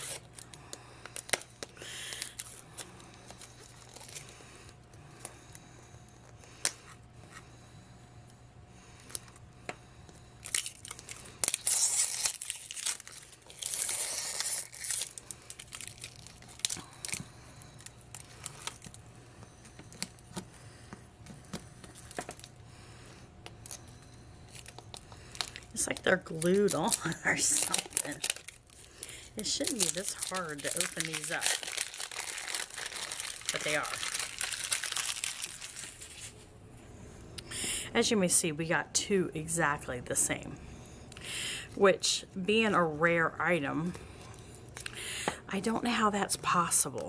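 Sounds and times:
plastic crinkling: 0.0s - 4.4s, 10.4s - 19.0s, 24.5s - 36.4s.

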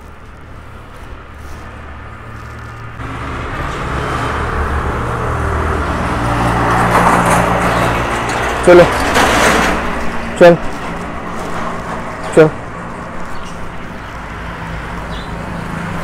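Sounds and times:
road noise: 0.0s - 16.0s
vehicle engine approaching: 0.0s - 16.0s.

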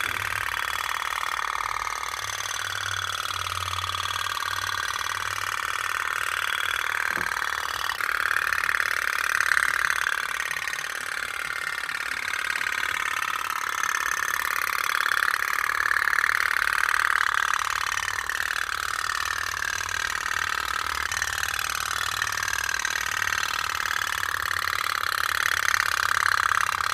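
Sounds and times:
pop-pop boat putt-putt buzz: 0.0s - 10.9s.

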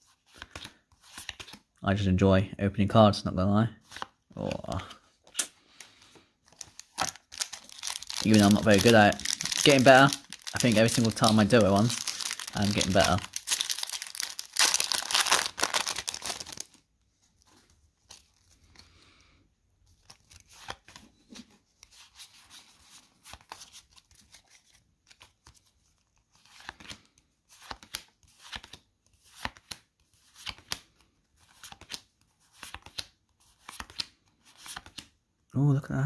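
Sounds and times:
cards clicking and sliding: 0.3s - 1.6s, 3.9s - 16.7s, 26.0s - 35.1s
wrapper rustling and tearing: 6.5s - 16.8s.

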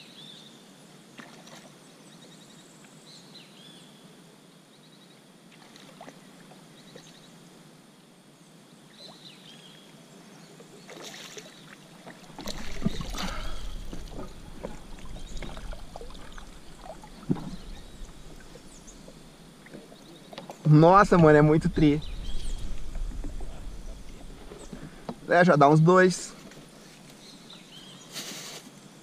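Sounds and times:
fish thrashing and splashing: 10.9s - 20.0s
faint bird chirps: 14.9s - 25.1s.

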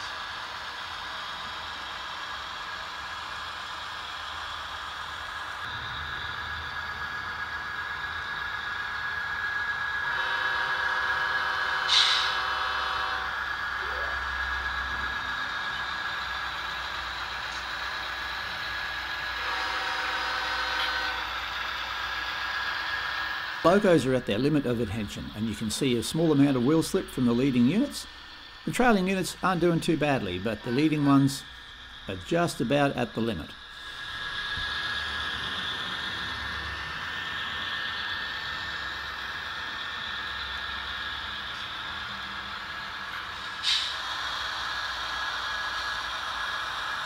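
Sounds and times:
model locomotive running whine: 0.0s - 47.0s
brief sharp hiss: 11.9s - 12.4s, 43.6s - 44.0s.

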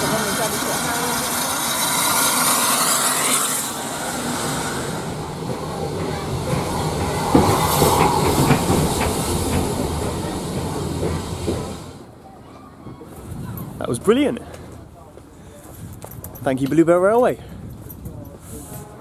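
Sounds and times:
steam locomotive hiss: 0.0s - 12.1s
train rumble: 0.0s - 12.2s
knocks and clanks: 4.8s - 12.0s.

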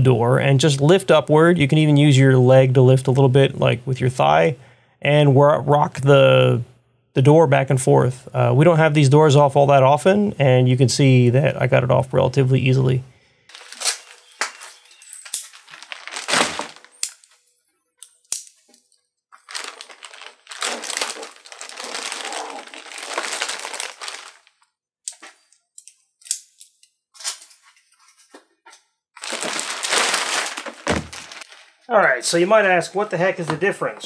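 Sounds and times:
plastic bag crinkling: 13.5s - 17.4s, 19.4s - 24.7s, 29.2s - 31.9s.

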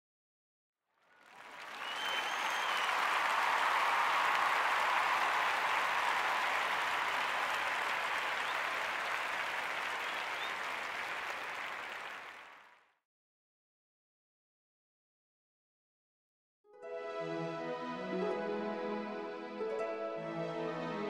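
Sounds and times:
crowd applauding: 1.0s - 12.8s.

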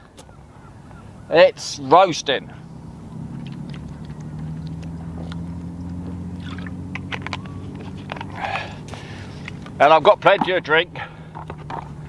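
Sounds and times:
low engine hum: 0.0s - 12.0s
person gulping a drink: 6.4s - 6.8s.

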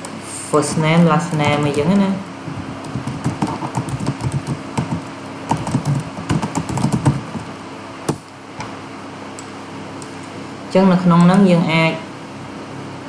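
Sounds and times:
keyboard typing clicks: 0.7s - 2.1s, 2.8s - 7.5s.

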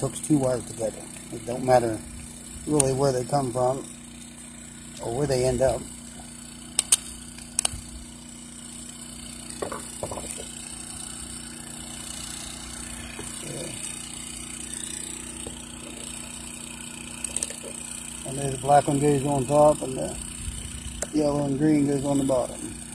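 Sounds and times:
steady low hum: 0.0s - 22.9s
screwdriver clicks and taps: 6.8s - 7.8s.

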